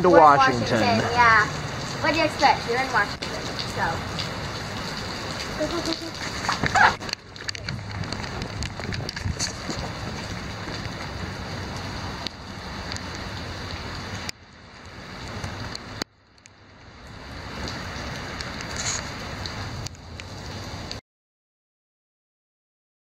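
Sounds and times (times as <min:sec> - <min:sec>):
steady rain: 0:00.0 - 0:21.0.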